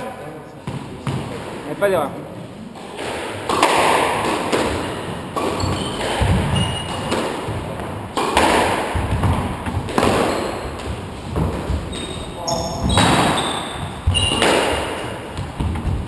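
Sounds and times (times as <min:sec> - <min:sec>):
squash ball hits echoing: 0:00.6 - 0:02.0, 0:02.8 - 0:16.0
footsteps on wooden floor: 0:10.6 - 0:12.4.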